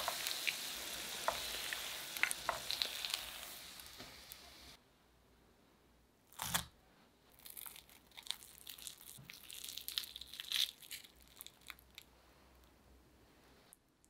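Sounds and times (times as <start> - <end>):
fried croquette crackling torn open: 6.3 - 6.7, 7.4 - 12.1.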